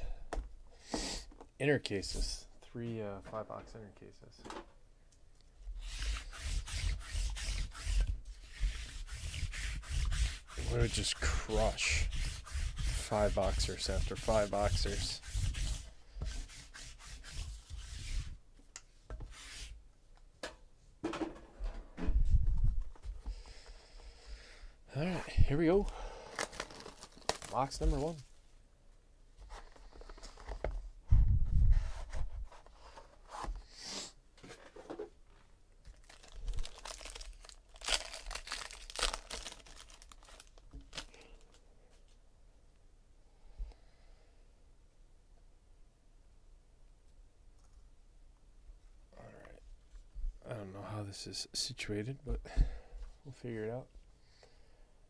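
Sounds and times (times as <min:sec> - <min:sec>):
hand rubbing on surfaces: 0:05.8 - 0:18.4
packaging tearing: 0:26.3 - 0:28.1, 0:35.9 - 0:41.6
plastic wrapping crinkling: 0:26.3 - 0:28.2, 0:35.9 - 0:41.6.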